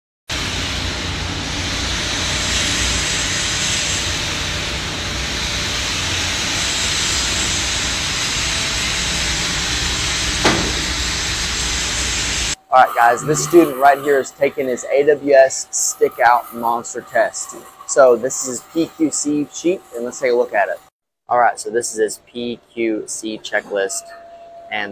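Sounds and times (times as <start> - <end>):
hissing rumbling workshop noise: 0.3 - 20.9
brief sharp sound: 12.8 - 14.2.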